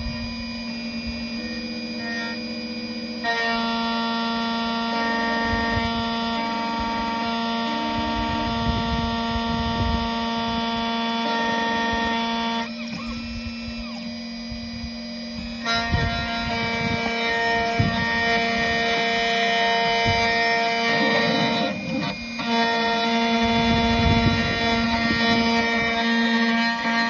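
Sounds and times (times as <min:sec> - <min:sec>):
key-cutting machine whine: 0:00.0 - 0:27.0
cutter grinding key blade: 0:15.3 - 0:27.0.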